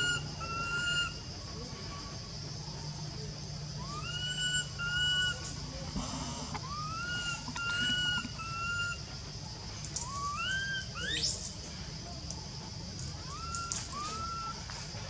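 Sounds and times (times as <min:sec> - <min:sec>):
baby monkey crying: 0:06.6 - 0:09.0.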